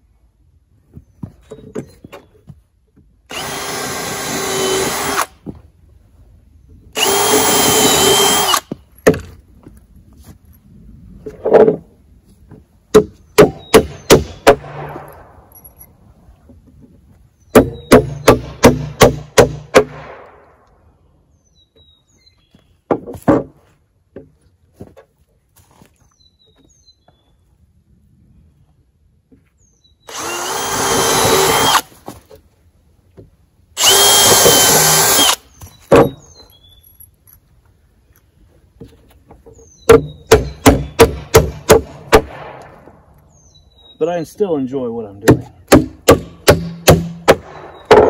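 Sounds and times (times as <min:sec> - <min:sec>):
cordless drill whirring: 0:03.3 - 0:05.3, 0:07.0 - 0:08.7, 0:30.1 - 0:31.9, 0:33.8 - 0:35.4
hammer striking wood: 0:12.9 - 0:15.1, 0:17.5 - 0:20.3, 0:33.9 - 0:36.2, 0:39.9 - 0:43.0, 0:45.3 - 0:48.0.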